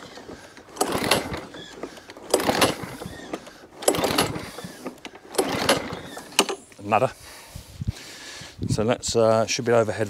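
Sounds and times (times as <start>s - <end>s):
lawn mower recoil starter pulls: 0.0s - 6.9s.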